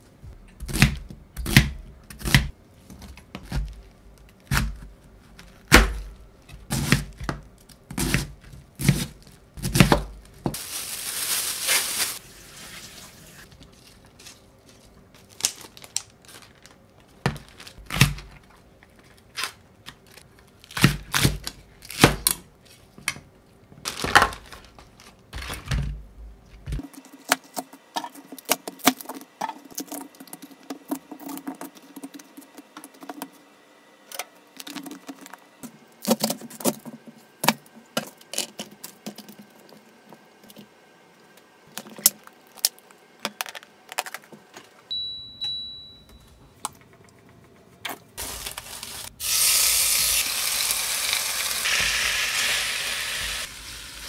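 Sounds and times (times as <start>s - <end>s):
plastic bag crinkling: 10.2s - 19.4s, 48.2s - 49.3s.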